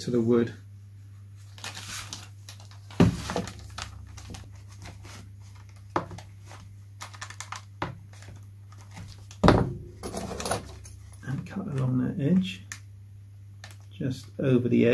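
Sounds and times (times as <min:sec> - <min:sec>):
plastic film crinkling: 0:01.4 - 0:09.4.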